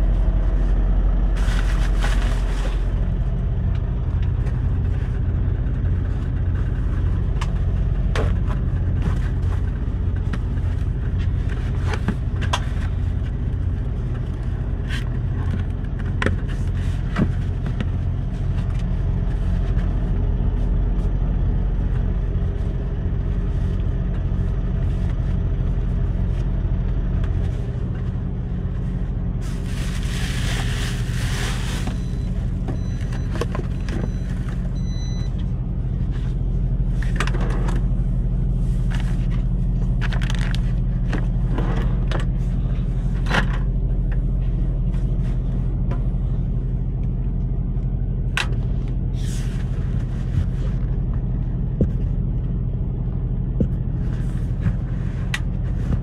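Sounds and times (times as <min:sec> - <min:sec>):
truck engine idling: 0:00.0 - 0:56.0
items rummaged in a drawer: 0:01.3 - 0:03.0, 0:38.8 - 0:42.5
paper rustling: 0:01.3 - 0:03.0, 0:29.4 - 0:32.3.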